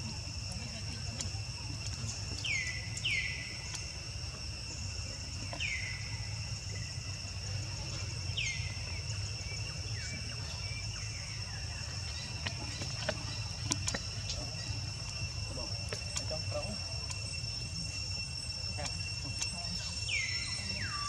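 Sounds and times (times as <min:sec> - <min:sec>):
high-pitched insect drone: 0:00.0 - 0:21.0.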